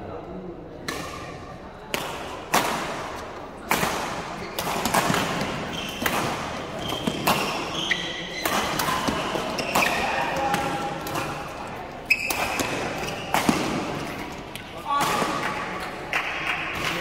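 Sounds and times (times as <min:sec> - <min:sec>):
rackets hitting shuttlecock: 0:00.8 - 0:17.0
shoes squeaking on court: 0:04.4 - 0:14.4.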